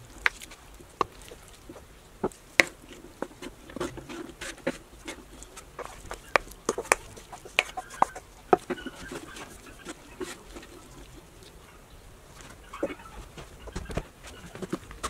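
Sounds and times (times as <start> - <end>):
wooden spoon scraping skillet: 0.0 - 11.7.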